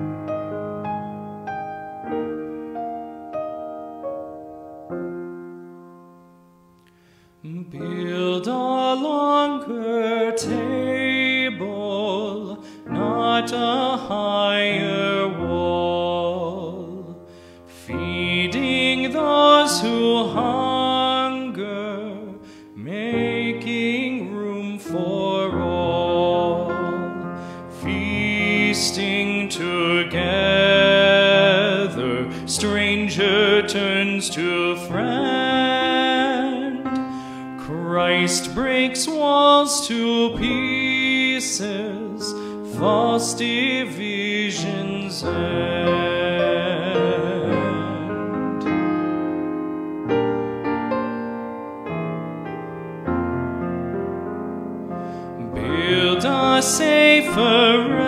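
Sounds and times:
piano chords: 0.0 - 58.0
man singing a hymn: 7.4 - 49.0, 55.4 - 58.0.

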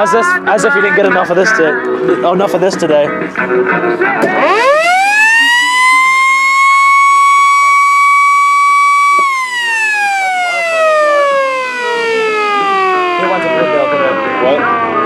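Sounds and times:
electromechanical siren wailing: 4.3 - 15.0.

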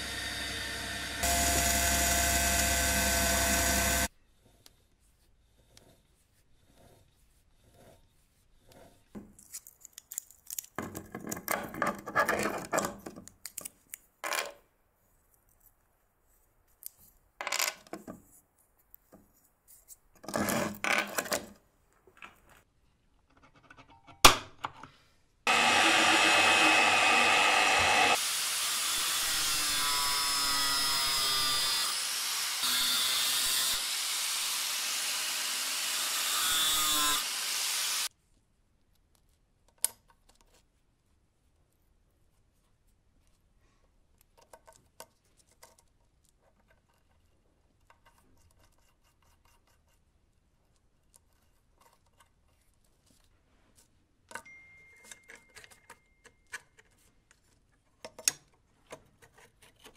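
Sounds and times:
angle grinder grinding metal: 0.0 - 4.1, 25.5 - 38.1.

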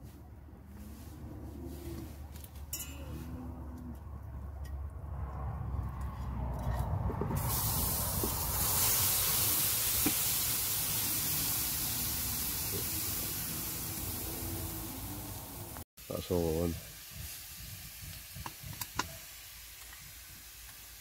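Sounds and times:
stew hissing and sizzling: 7.4 - 21.0.

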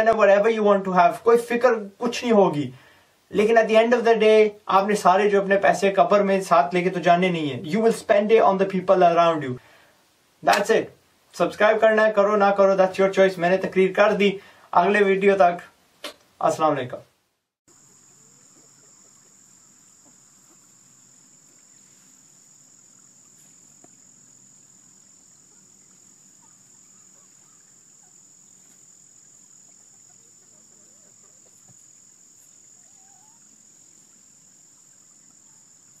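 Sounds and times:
insects chirring: 17.7 - 36.0.

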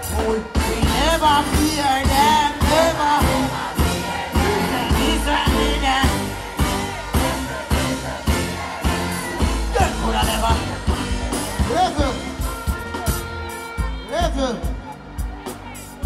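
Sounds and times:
man singing into a microphone: 0.0 - 3.5
live band with bass-heavy beat: 0.0 - 16.0.

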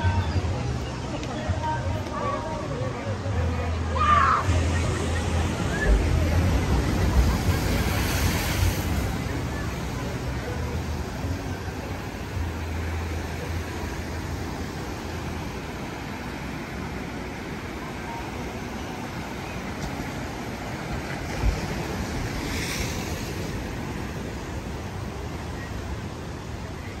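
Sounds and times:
ocean surf breaking over rocks: 3.9 - 27.0.

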